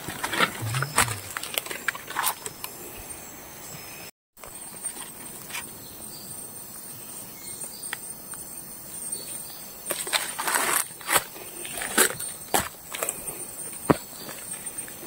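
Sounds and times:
insect drone: 0.0s - 15.0s.

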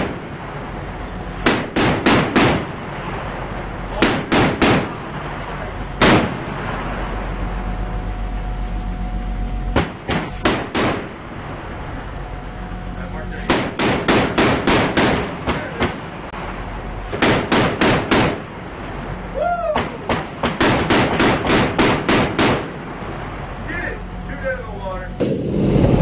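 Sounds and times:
steady low hum: 0.0s - 26.0s
rapid gunfire bursts: 1.4s - 2.7s, 4.0s - 4.9s, 13.5s - 16.0s, 17.2s - 18.4s, 20.4s - 22.7s.

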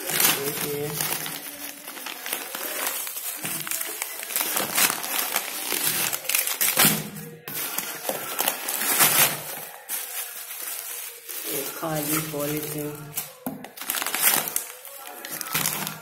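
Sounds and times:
bubble wrap and plastic crinkling: 0.0s - 16.0s.

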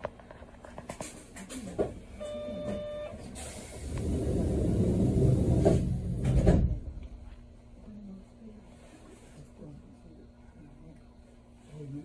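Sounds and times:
streetcar doors sliding: 3.3s - 7.0s
low rumble: 3.8s - 8.0s.

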